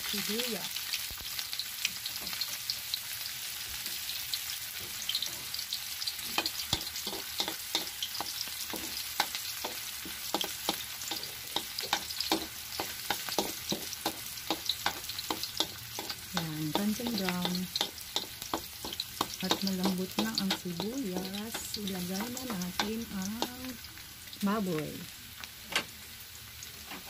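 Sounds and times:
garlic and onion sizzling in oil: 0.0s - 27.0s
utensil knocking against pan: 11.6s - 23.5s.

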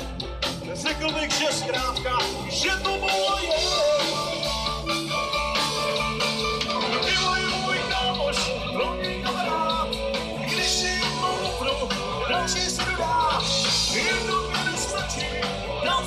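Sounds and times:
bass guitar: 0.0s - 16.0s
drums: 0.0s - 16.0s
electric guitar with bent notes: 0.0s - 16.0s
keyboards: 0.0s - 16.0s.

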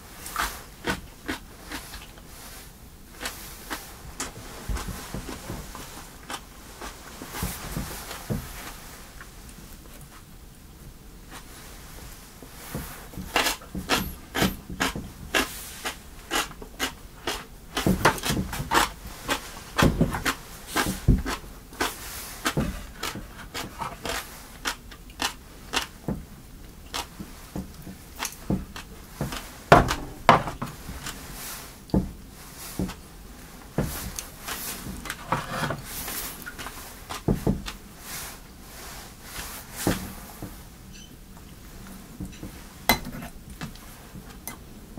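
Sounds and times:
close-up chewing: 0.2s - 2.4s, 3.2s - 7.1s, 13.2s - 30.0s.

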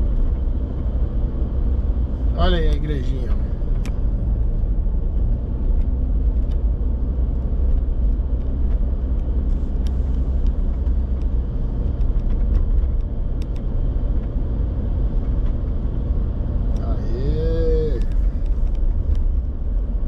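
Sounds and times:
vehicle engine and road noise: 0.0s - 20.0s
light clicks and rattles: 5.6s - 14.5s, 17.9s - 19.9s.

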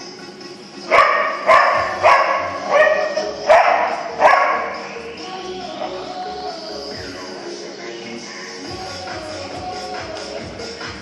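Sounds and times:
dog barking: 0.9s - 4.9s.

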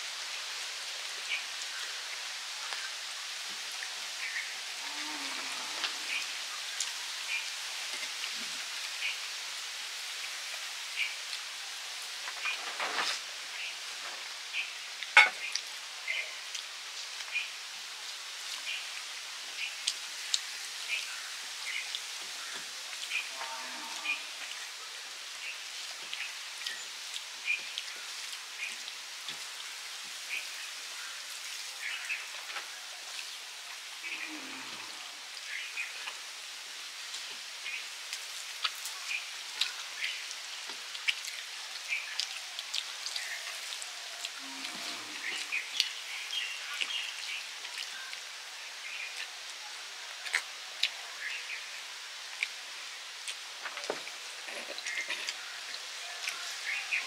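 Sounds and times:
outdoor hiss: 0.0s - 57.0s
chewing: 50.2s - 51.0s, 53.2s - 56.4s.

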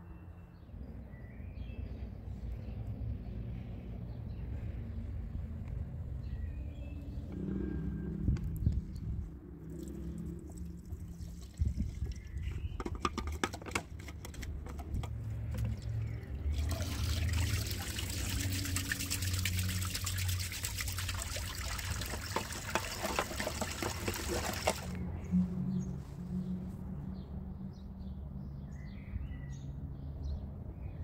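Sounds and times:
water running and splashing: 16.4s - 25.0s.

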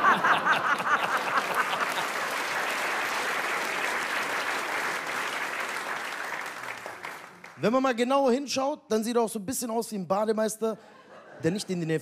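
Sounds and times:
audience laughter: 0.0s - 2.2s
audience applauding: 0.0s - 7.7s.

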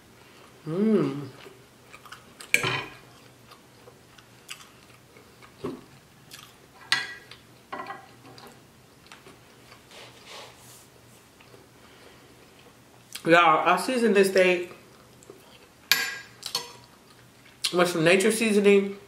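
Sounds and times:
chewing: 1.2s - 6.6s.

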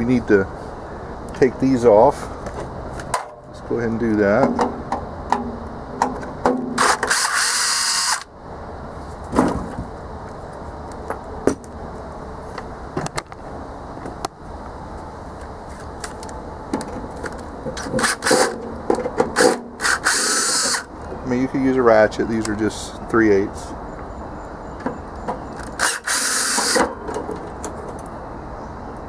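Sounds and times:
cordless drill spinning: 6.8s - 8.2s, 19.8s - 20.9s, 25.8s - 26.8s.

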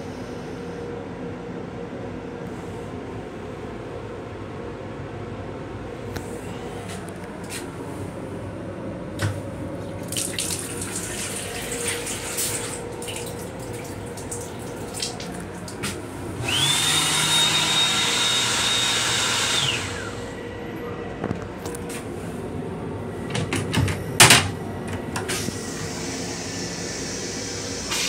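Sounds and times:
steady hum: 0.0s - 28.0s
faucet running water into sink: 10.0s - 15.7s
hand dryer blowing: 10.1s - 20.4s, 25.0s - 28.0s.

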